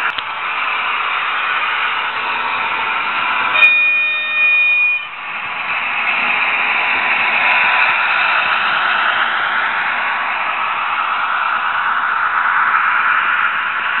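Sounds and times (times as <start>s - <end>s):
steady hissing running noise: 0.0s - 14.0s
model locomotive horn: 3.5s - 5.2s.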